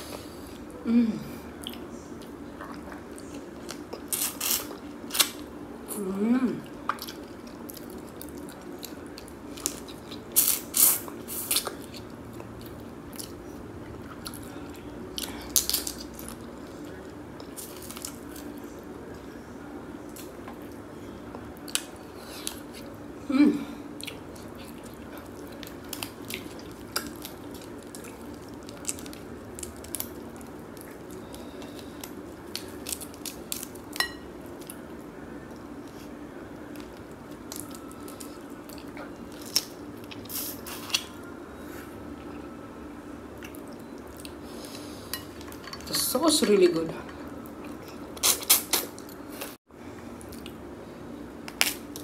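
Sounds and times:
steady low room hum: 0:00.0 - 0:52.0
person humming: 0:00.8 - 0:01.4.

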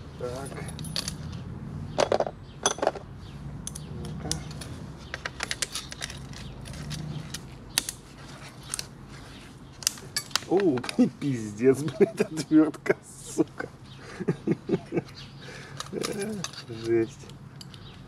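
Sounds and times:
metal hand tools clicking: 0:15.7 - 0:17.9.

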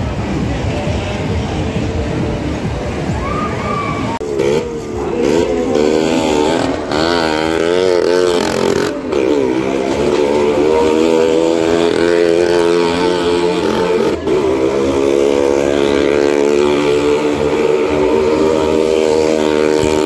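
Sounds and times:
motorcycle engine revving: 0:04.0 - 0:20.0.

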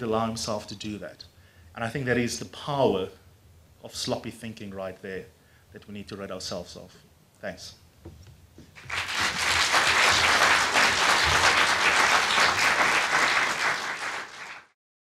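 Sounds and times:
audience applauding: 0:08.8 - 0:14.8.

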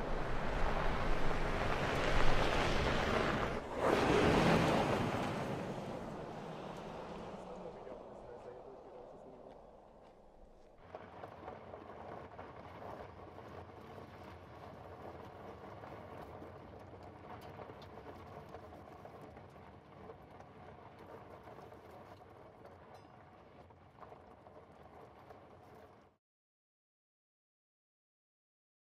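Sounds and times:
low engine rumble: 0:00.0 - 0:12.3.

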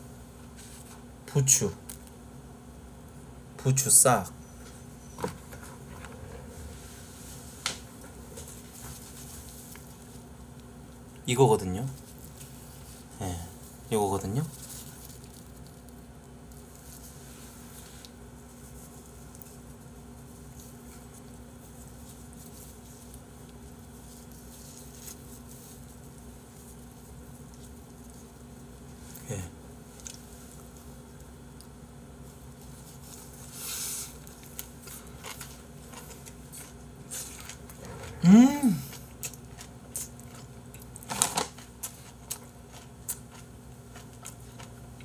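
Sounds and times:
steady low hum: 0:00.0 - 0:45.0
soft handling of leaf wrap: 0:00.4 - 0:02.3, 0:04.4 - 0:38.0.

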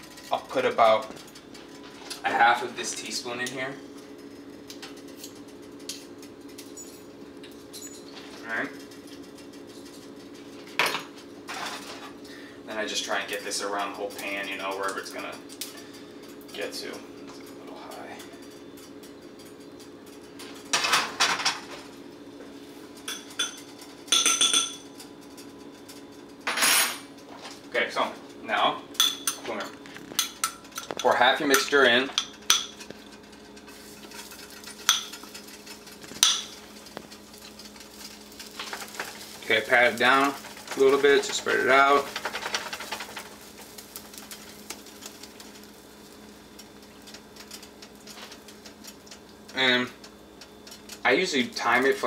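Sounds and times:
steady low hum: 0:00.0 - 0:52.0
utensils clinking against dishes: 0:04.7 - 0:12.2, 0:23.0 - 0:27.6, 0:29.0 - 0:43.3
batter sizzling in frying pan: 0:27.1 - 0:52.0
frying pan clattering on stove: 0:38.0 - 0:45.1.

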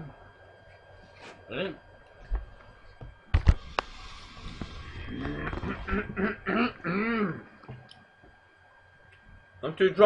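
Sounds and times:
person giggling: 0:05.1 - 0:07.5.

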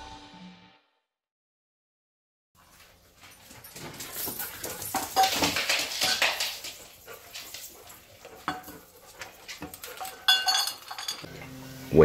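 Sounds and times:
dry kibble rattling in metal bowl: 0:03.3 - 0:11.3.

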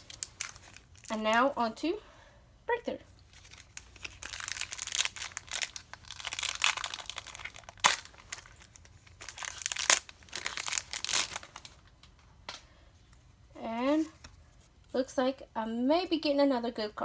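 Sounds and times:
foil wrapper crinkling and tearing: 0:00.0 - 0:01.3, 0:03.3 - 0:11.9.

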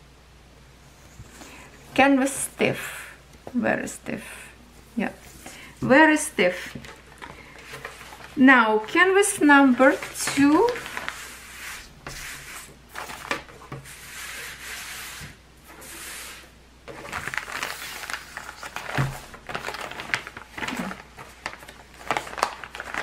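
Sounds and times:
plastic bag crinkling: 0:06.8 - 0:09.1, 0:09.7 - 0:11.4, 0:16.9 - 0:23.0.

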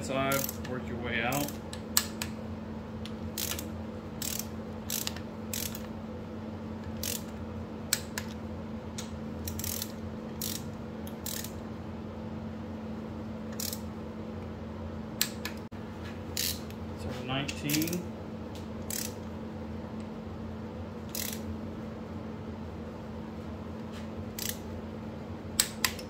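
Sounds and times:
steady low hum: 0:00.0 - 0:26.0
ratchet wrench clicking: 0:00.3 - 0:00.7, 0:01.3 - 0:02.3, 0:03.3 - 0:05.9, 0:06.9 - 0:07.3, 0:09.4 - 0:11.6, 0:13.5 - 0:13.8, 0:16.4 - 0:16.6, 0:18.8 - 0:19.2, 0:21.1 - 0:21.4, 0:24.4 - 0:24.6.

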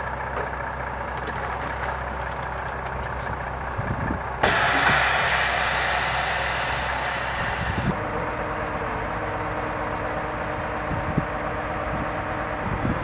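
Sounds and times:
heavy machinery engines running: 0:00.0 - 0:13.0
loud even hiss: 0:04.4 - 0:07.9.

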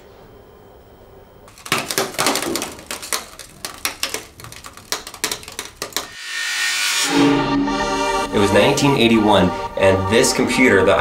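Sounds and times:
sharp clicks and clacks: 0:01.5 - 0:06.2
music: 0:06.2 - 0:11.0.

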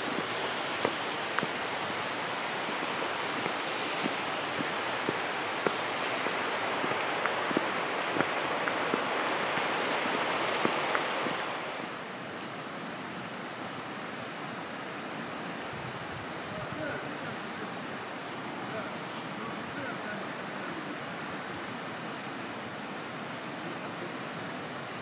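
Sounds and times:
footsteps: 0:00.0 - 0:11.9
rushing water: 0:00.0 - 0:25.0.

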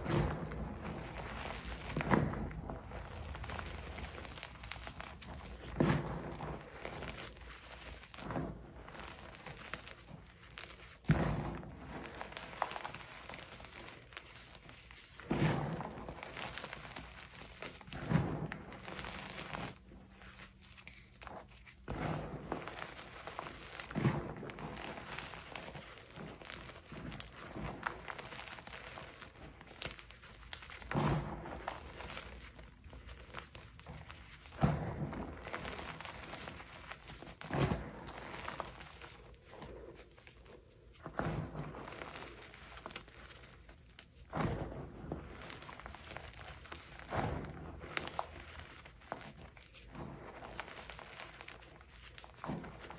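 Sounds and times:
chalk powder crunching: 0:24.6 - 0:44.3, 0:45.0 - 0:52.9.

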